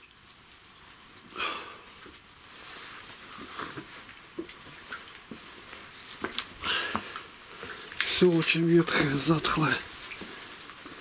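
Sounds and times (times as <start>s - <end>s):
man breathing and sniffing: 1.2s - 4.0s, 5.6s - 8.0s
soft footsteps on ground: 1.9s - 11.0s.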